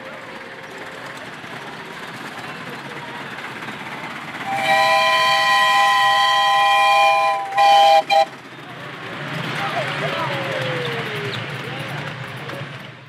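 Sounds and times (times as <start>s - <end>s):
steam whistle chord: 4.4s - 8.3s.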